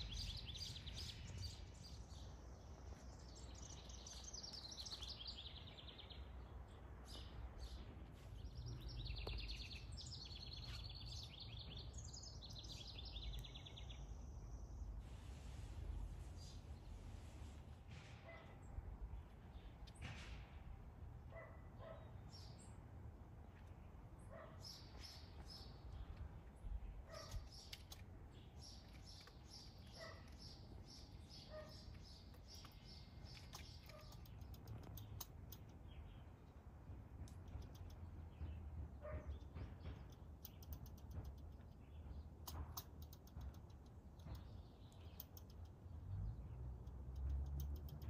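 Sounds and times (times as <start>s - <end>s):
songbirds chirping: 0.0s - 48.0s
dog barking: 18.2s - 18.6s, 21.3s - 22.1s, 24.3s - 24.6s, 27.1s - 27.4s, 30.0s - 30.3s, 31.5s - 31.8s, 39.0s - 39.3s.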